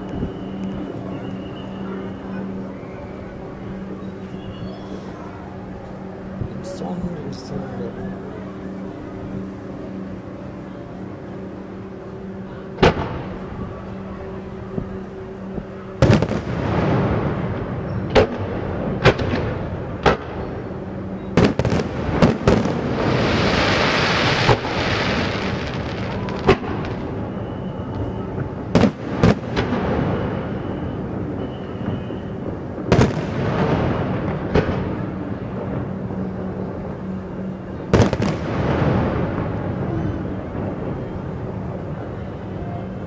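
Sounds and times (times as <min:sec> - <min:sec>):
fireworks bangs with echo: 0:12.8 - 0:13.4, 0:16.0 - 0:20.6, 0:21.3 - 0:27.4, 0:28.5 - 0:35.9, 0:37.9 - 0:42.0
fireworks crackling: 0:15.6 - 0:43.0.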